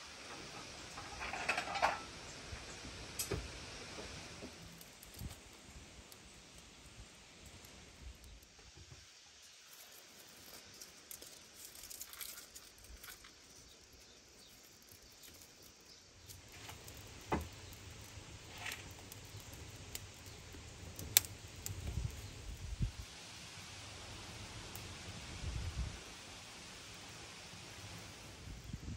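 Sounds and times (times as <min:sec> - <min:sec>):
fire crackling: 0:00.0 - 0:28.9
low fire rumble: 0:00.0 - 0:28.9
twigs rustling and snapping: 0:04.4 - 0:22.7.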